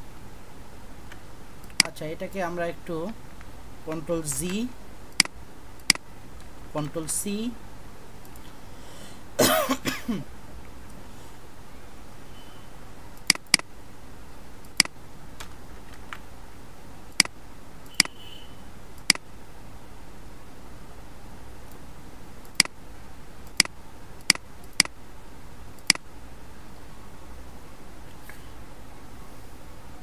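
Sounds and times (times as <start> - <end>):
faint background hiss and hum: 0.0 - 30.0
computer mouse clicking: 1.1 - 2.0, 13.2 - 13.7, 14.6 - 16.3, 17.1 - 18.2, 22.4 - 22.8, 23.4 - 25.0, 25.8 - 26.0.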